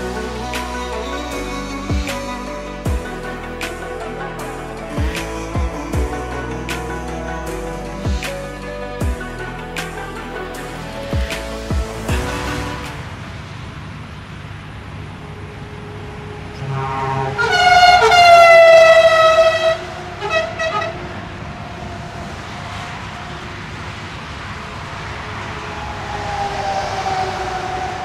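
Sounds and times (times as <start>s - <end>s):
truck engine and road noise: 0.0s - 28.0s
vehicle passing: 2.7s - 28.0s
truck air horn blasts: 16.6s - 21.0s.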